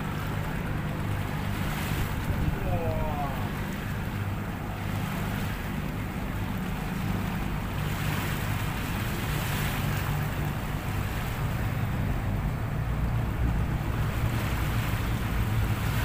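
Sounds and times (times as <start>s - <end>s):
wind on microphone: 0.0s - 6.9s
boat engine droning: 0.0s - 16.0s
water washing: 0.0s - 16.0s.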